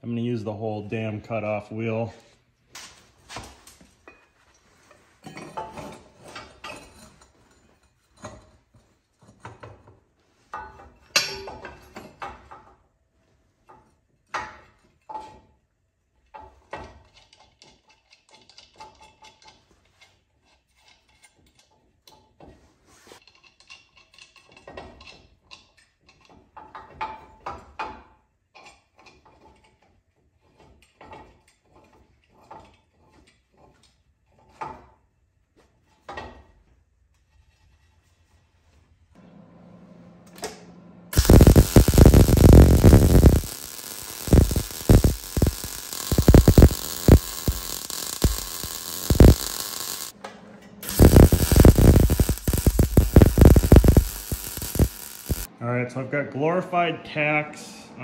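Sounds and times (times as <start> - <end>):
rustling of hand work: 2.2 - 11.2, 11.8 - 27.0, 28.6 - 39.2.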